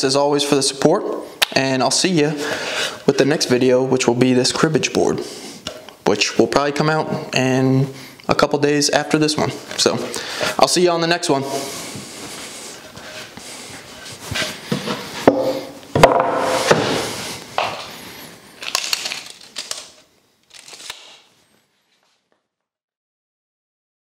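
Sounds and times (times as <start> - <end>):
wooden board knocks and scrapes: 14.4 - 17.8.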